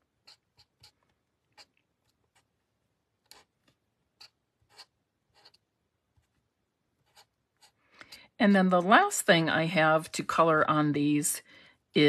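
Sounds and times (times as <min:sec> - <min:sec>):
marker scratching on card: 0:00.2 - 0:02.6, 0:03.2 - 0:06.4, 0:07.0 - 0:07.8.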